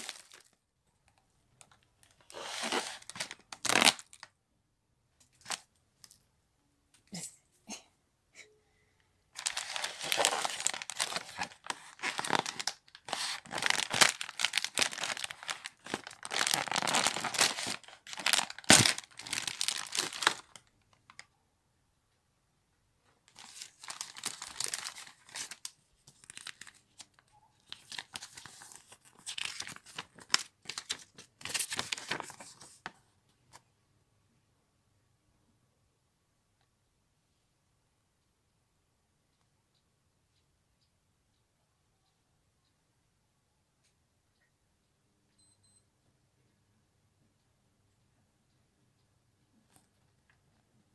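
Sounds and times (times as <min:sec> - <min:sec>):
foil wrapper crinkling: 0:00.0 - 0:00.6, 0:02.2 - 0:04.3, 0:09.4 - 0:21.2, 0:23.3 - 0:32.8.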